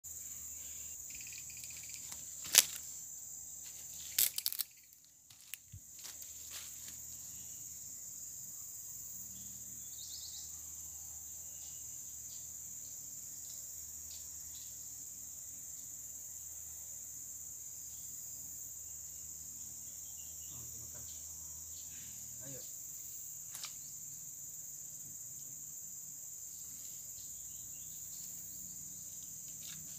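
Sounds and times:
forest insects chorus: 0.0s - 29.9s.

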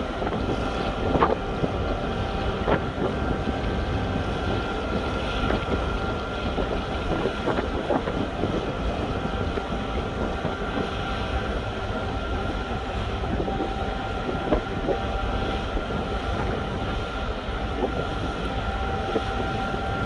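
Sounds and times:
crane hoist rumble and whine: 0.0s - 20.0s.

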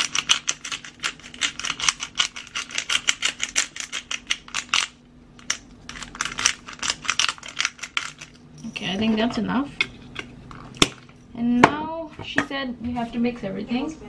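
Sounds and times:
pepper grinder clicking and crunching: 0.0s - 9.1s.

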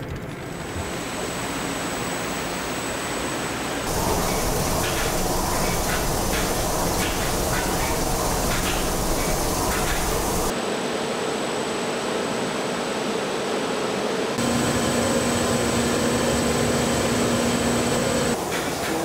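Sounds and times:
printing machine drone: 0.5s - 10.5s, 14.4s - 19.0s.

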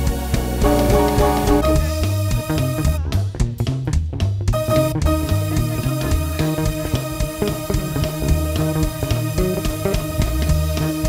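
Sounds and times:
guitar and bass music: 0.0s - 11.0s
steady percussive beat: 0.6s - 3.2s, 4.6s - 8.5s.

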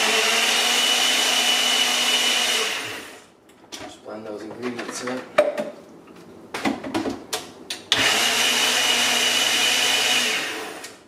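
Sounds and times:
blender motor whining: 0.0s - 3.3s, 7.9s - 11.0s.

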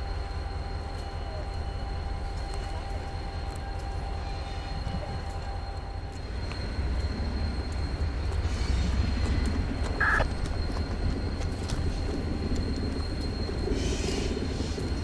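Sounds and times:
diesel locomotives rumbling: 0.0s - 15.0s
brief high-pitched tone: 10.0s - 10.2s.

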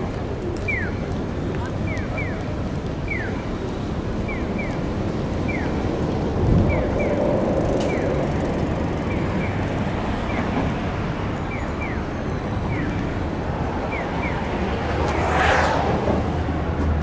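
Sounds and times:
road traffic: 0.0s - 17.0s
vehicle passing close: 6.3s - 9.7s, 14.5s - 17.0s
crossing signal chirping: 6.5s - 10.6s.

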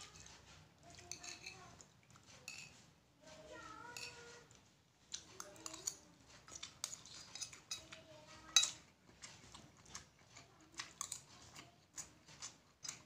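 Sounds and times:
utensil clinking against plate: 0.0s - 2.8s, 3.8s - 4.5s, 5.3s - 8.9s
wet chewing and mouth clicks: 4.5s - 13.0s.

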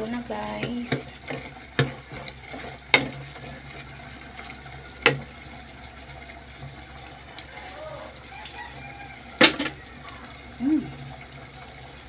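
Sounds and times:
stew simmering in a pot: 0.0s - 12.0s
ladle knocking on a pot: 9.4s - 9.8s.

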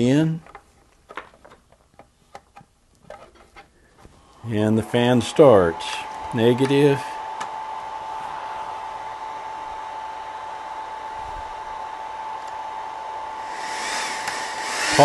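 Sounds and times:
power supply fan whirring: 4.0s - 15.0s
thin steady whine: 4.0s - 15.0s
compressor cooling fan: 4.2s - 15.0s.

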